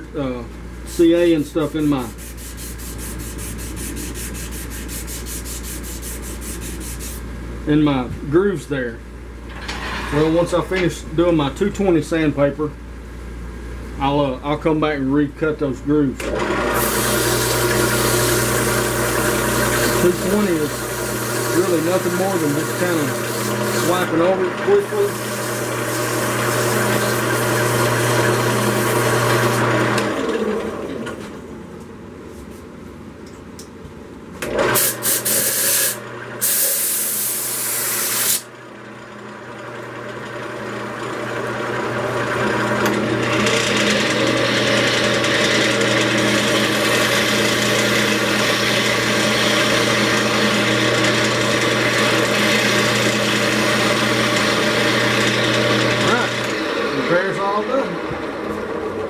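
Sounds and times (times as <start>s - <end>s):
sandpaper rubbing spinning wood: 0.9s - 7.3s, 16.8s - 29.8s
wood lathe running: 1.0s - 7.2s, 16.2s - 31.0s, 38.8s - 59.0s.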